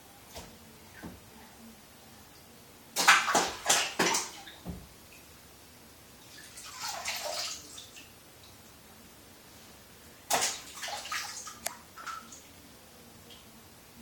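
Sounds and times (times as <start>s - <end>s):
bathwater splashing: 3.0s - 4.8s, 6.2s - 8.1s, 10.3s - 12.4s
water trickling and sloshing: 6.2s - 8.7s, 10.3s - 12.5s.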